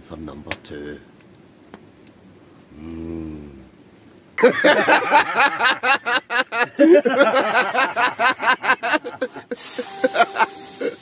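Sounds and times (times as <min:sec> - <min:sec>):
man laughing: 0:04.4 - 0:11.0.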